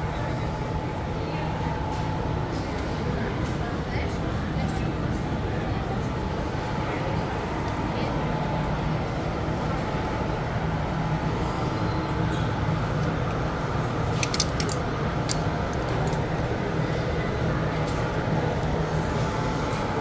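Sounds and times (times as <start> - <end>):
shop background hum: 0.0 - 20.0
hangers clicking on metal rail: 14.2 - 16.2.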